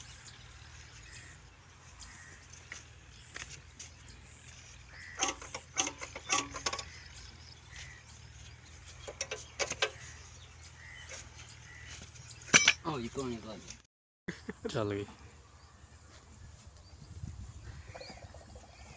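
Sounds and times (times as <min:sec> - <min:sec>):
birds calling: 0:00.0 - 0:13.8, 0:14.4 - 0:18.9.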